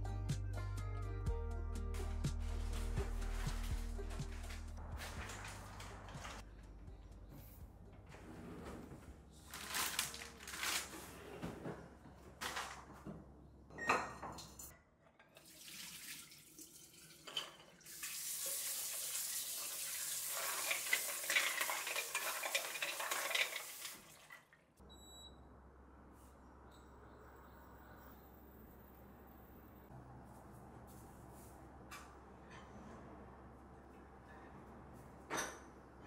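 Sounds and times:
tap water running into sink: 0:15.4 - 0:24.5.

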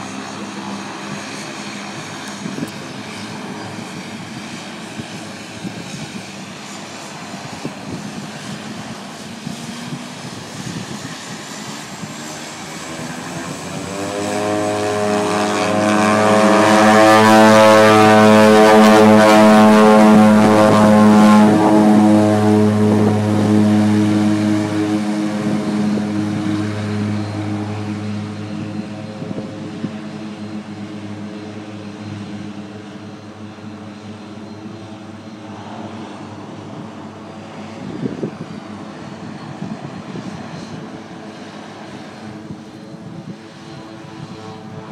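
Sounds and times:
propeller plane drone: 0:00.0 - 0:44.9.

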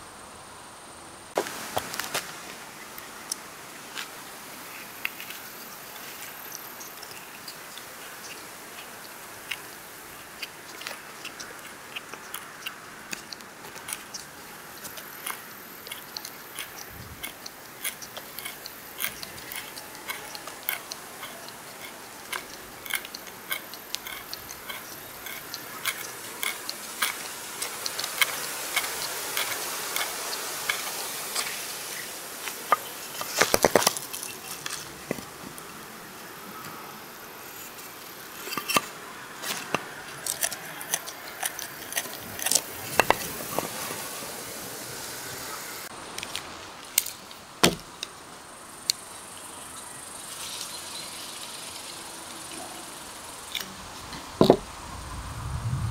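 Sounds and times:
tool point boring into wood clicking: 0:08.8 - 0:31.5.

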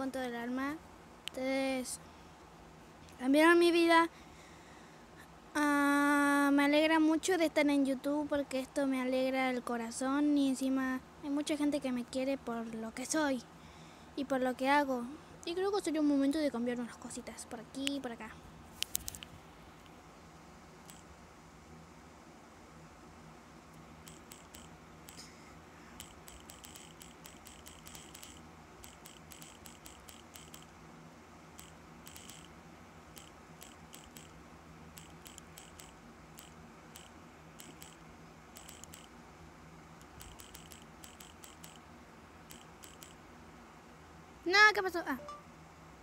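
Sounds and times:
low hum: 0:09.6 - 0:46.0
typing clicks on phone touchscreen: 0:24.0 - 0:25.3, 0:26.0 - 0:30.7, 0:31.6 - 0:32.5, 0:33.2 - 0:34.4, 0:35.0 - 0:38.0, 0:38.6 - 0:39.1, 0:40.0 - 0:41.8, 0:42.5 - 0:43.2.

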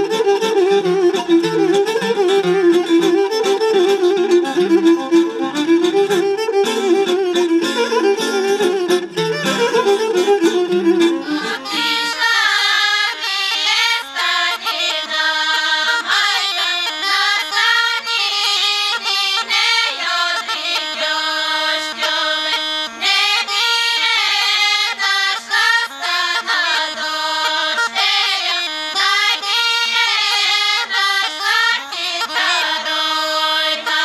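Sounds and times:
women's choir singing folk song: 0:11.4 - 0:34.0.

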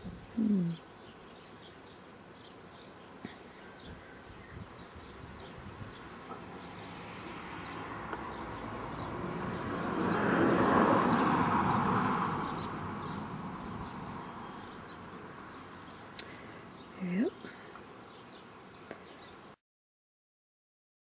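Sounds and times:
vehicle passing by: 0:05.4 - 0:15.9.

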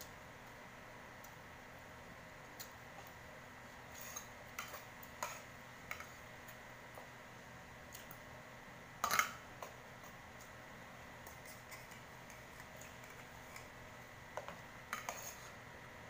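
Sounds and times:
faint steady hum: 0:00.0 - 0:16.0
cutlery scraping a plate: 0:03.9 - 0:06.2, 0:09.0 - 0:09.4, 0:11.3 - 0:13.7, 0:14.4 - 0:15.6
cutlery clatter: 0:09.0 - 0:09.4.

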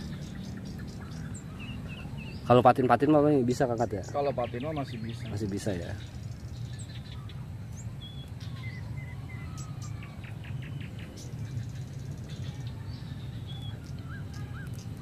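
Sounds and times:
low background rumble: 0:00.0 - 0:15.0
small birds chirping: 0:00.0 - 0:15.0.

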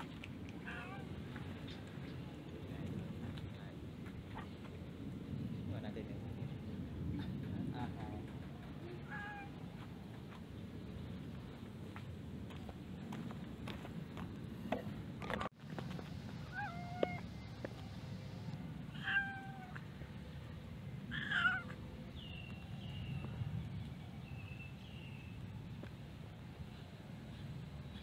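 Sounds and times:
cat meowing: 0:00.6 - 0:01.1, 0:09.0 - 0:09.5, 0:16.5 - 0:17.2, 0:18.9 - 0:19.8, 0:21.1 - 0:21.8
short high cat calls: 0:16.5 - 0:17.2.

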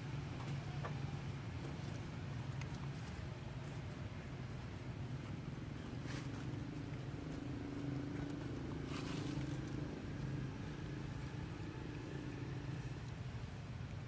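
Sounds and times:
low motor hum: 0:00.0 - 0:14.0
short rustle: 0:08.8 - 0:09.8.

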